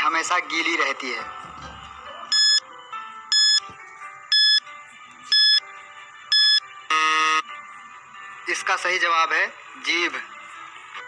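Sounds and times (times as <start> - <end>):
faint background music: 0.0 - 11.0
high electronic beeps: 2.3 - 2.6, 3.3 - 3.6, 4.3 - 4.6, 5.3 - 5.6, 6.3 - 7.4
low buzzer tone: 6.3 - 7.4.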